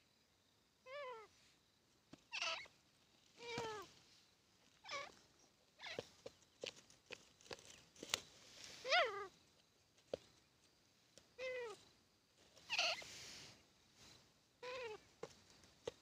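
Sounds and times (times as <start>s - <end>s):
francolin calling: 2.3s - 3.9s, 4.8s - 6.6s, 8.5s - 9.4s, 11.2s - 12.0s, 12.6s - 15.2s.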